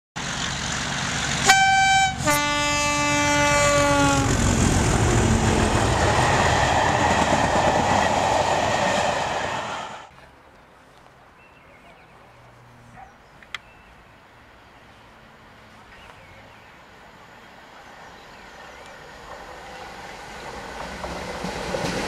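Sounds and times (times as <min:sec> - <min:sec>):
passing train rumble: 0:00.2 - 0:10.2, 0:13.8 - 0:22.0
train two-tone horn: 0:01.4 - 0:04.4.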